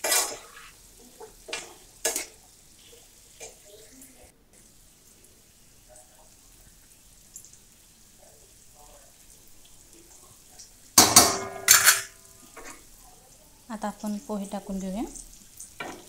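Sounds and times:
metal kitchenware clattering: 0.0s - 0.7s, 1.4s - 2.4s, 11.0s - 12.8s.

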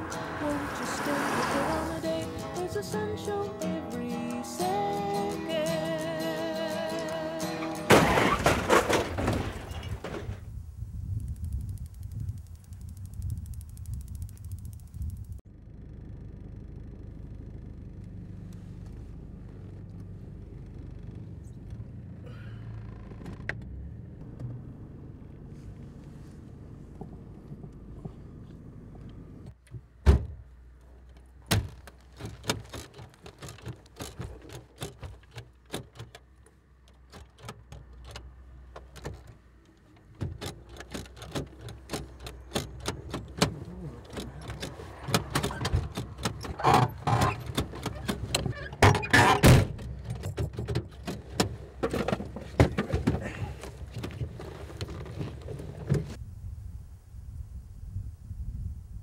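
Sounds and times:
car engine rumbling: 0.0s - 56.4s
loud thunk: 7.9s - 10.4s, 30.0s - 30.4s, 48.8s - 49.9s
quick clicks and rattles: 31.0s - 56.2s.

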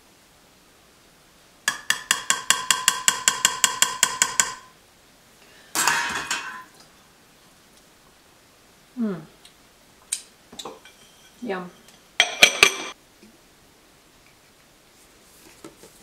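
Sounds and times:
dishware clatter: 5.8s - 6.8s, 10.6s - 13.0s
spoon clinking ceramic dish: 12.2s - 13.0s.

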